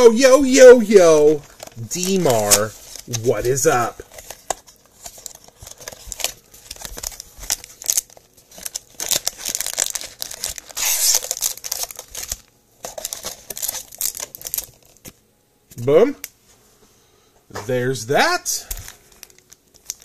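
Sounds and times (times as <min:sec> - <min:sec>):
wrapper crinkling: 0:00.0 - 0:15.2, 0:18.6 - 0:20.0
cardboard box tearing: 0:08.6 - 0:12.4.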